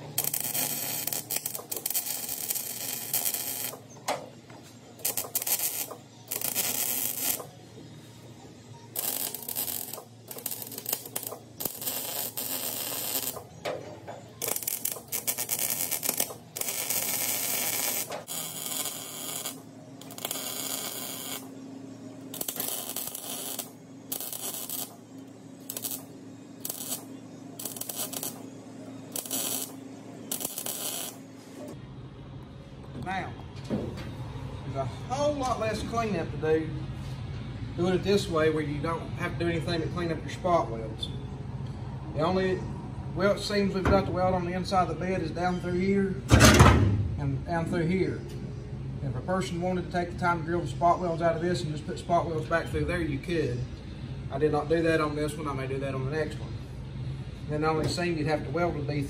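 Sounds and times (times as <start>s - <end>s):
welder crackling: 0.0s - 4.2s, 5.0s - 7.5s, 8.9s - 13.7s, 14.4s - 21.6s, 22.3s - 31.3s.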